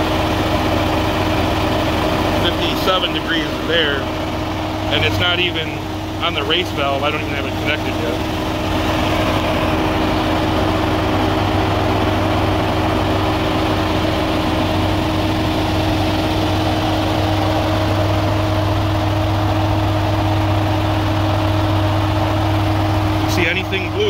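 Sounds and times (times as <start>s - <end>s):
engine idling: 0.0s - 24.0s.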